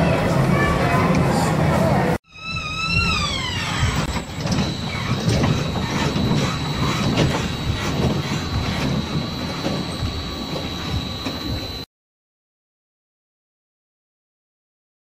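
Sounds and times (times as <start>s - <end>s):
roller coaster cars rumbling: 0.0s - 11.8s
high whine: 2.3s - 11.9s.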